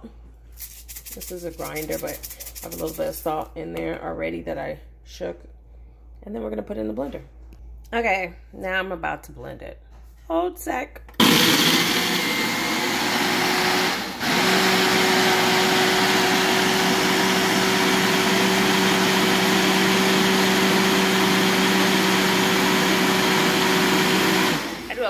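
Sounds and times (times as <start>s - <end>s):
blender motor running: 11.2s - 25.0s.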